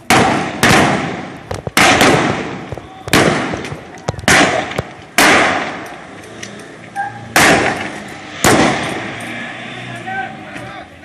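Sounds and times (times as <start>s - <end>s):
simulated gunfire bangs: 0.0s - 5.8s, 7.4s - 9.0s.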